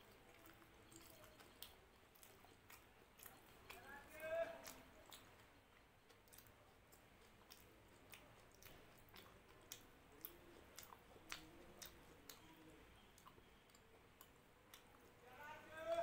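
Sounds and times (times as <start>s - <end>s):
closed-mouth chewing: 0.0s - 15.3s
fingers squishing food: 0.0s - 16.0s
wet mouth clicks: 4.6s - 15.1s.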